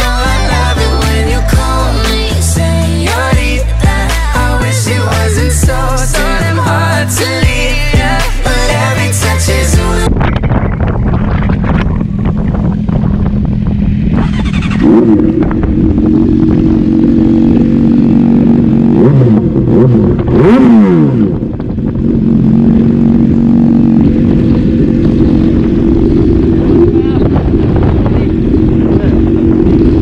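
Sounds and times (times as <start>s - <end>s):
motorcycle engine idling and revving: 0.0s - 30.0s.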